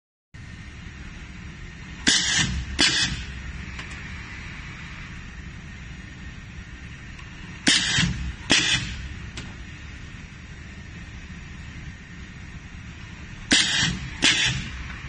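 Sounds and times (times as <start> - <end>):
steady low hum: 0.4 - 15.0
pneumatic machine clacks: 2.0 - 4.0, 7.2 - 9.6, 13.4 - 15.0.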